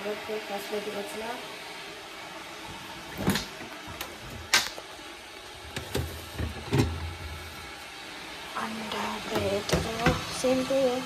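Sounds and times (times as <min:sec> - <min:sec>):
kitchen things knocking and clinking: 0:05.7 - 0:07.1.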